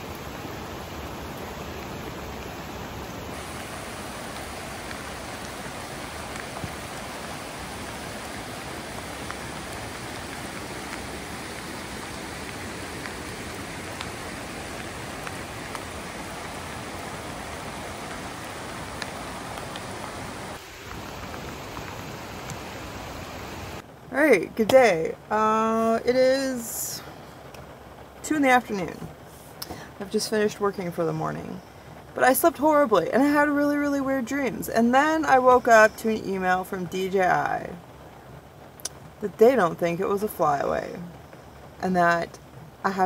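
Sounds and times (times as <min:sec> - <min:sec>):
steady rain: 0:00.0 - 0:43.0
single raindrop ticks: 0:07.8 - 0:20.1, 0:38.8 - 0:39.1.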